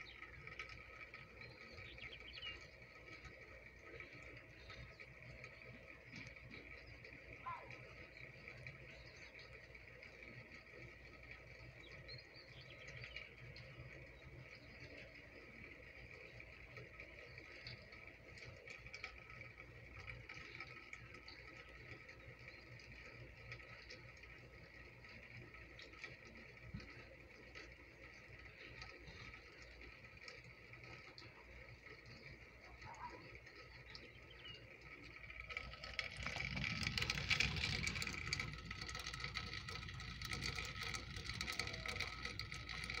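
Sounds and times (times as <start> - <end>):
rain pattering on concrete: 12.7 - 43.0
low rumble: 33.9 - 43.0.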